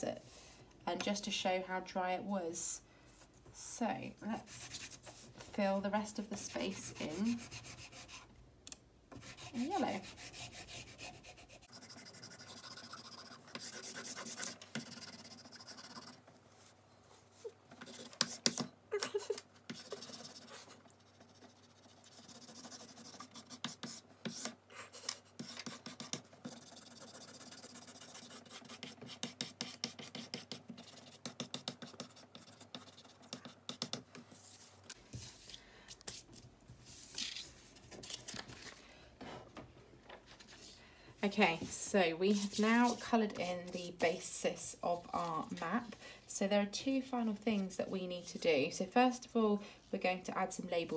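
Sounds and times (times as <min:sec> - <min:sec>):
pencil scratching on paper: 0:04.3 - 0:05.6, 0:06.2 - 0:08.3, 0:09.1 - 0:18.7, 0:19.6 - 0:34.7, 0:42.3 - 0:44.2.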